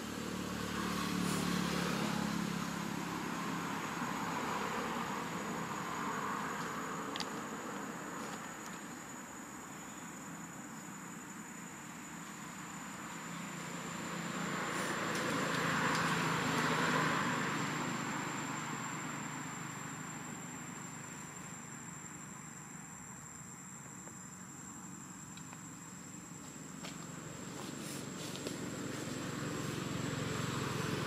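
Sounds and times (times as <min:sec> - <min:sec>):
motor vehicle passing by: 0:00.0 - 0:08.4, 0:12.9 - 0:21.5, 0:26.4 - 0:31.0
high-pitched insect whine: 0:00.0 - 0:31.0.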